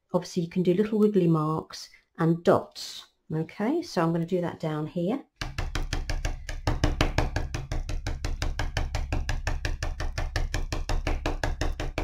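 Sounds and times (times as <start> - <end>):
oil pastel tapping on paper: 5.4 - 12.0.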